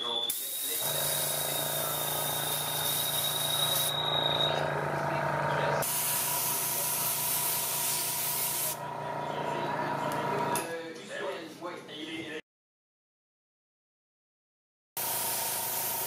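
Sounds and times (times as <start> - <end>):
spraying hiss: 0.3 - 3.9
low motor hum: 0.9 - 5.8, 8.8 - 10.6.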